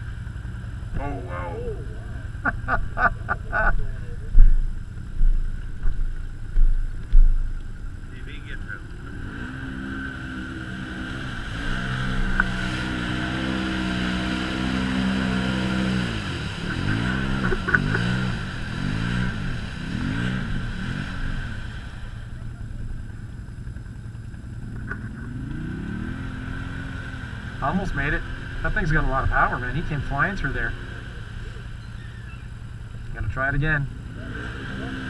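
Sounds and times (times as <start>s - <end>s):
engine revving in mud: 0.0s - 6.5s, 8.1s - 23.3s, 24.6s - 35.0s.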